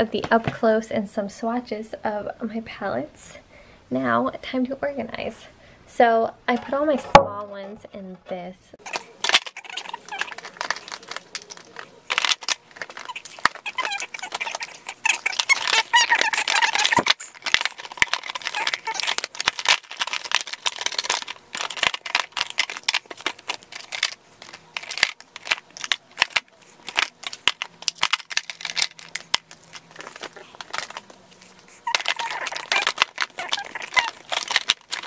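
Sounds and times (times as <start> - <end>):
plastic palettes clicking: 8.9 - 35.0
high wavering squeaks: 11.6 - 17.6, 30.0 - 35.0.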